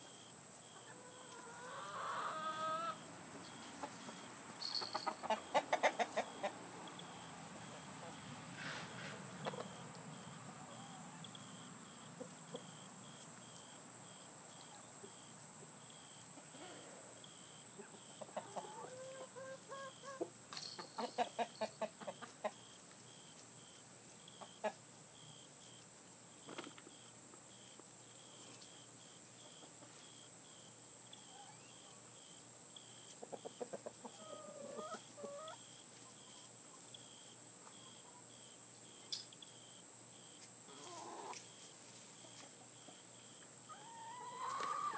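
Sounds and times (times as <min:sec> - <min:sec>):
faint insect chirp: 0:00.0 - 0:44.9
chickens clucking: 0:00.6 - 0:12.8, 0:16.3 - 0:23.5, 0:24.1 - 0:24.9, 0:28.5 - 0:30.2, 0:32.8 - 0:38.4, 0:40.7 - 0:44.9.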